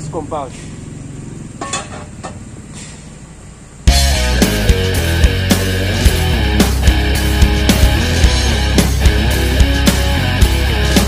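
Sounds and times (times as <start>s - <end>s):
heavy rock music: 3.9s - 11.0s.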